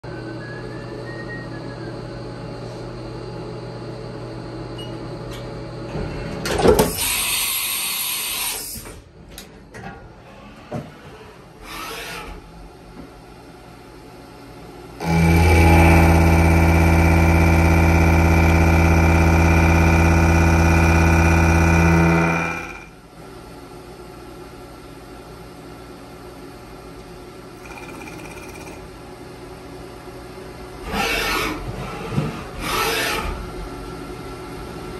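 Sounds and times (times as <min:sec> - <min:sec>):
milling cutter machining steel: 0:15.0 - 0:22.9.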